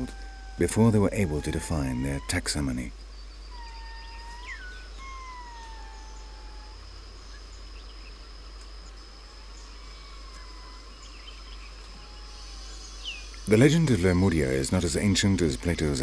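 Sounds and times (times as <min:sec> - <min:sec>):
lemurs mewing calls: 0:00.0 - 0:02.9, 0:03.5 - 0:07.0, 0:09.2 - 0:14.6.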